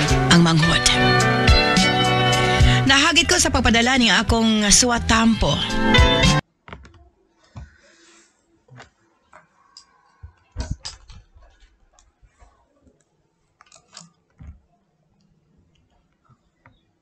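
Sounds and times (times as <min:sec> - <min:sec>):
computer mouse clicks: 0:13.0 - 0:14.6.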